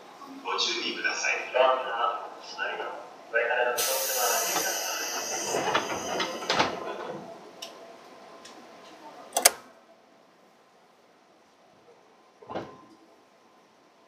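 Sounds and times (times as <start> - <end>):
train doors air rush: 3.8 - 7.1
train doors shutting knock: 4.0 - 7.2.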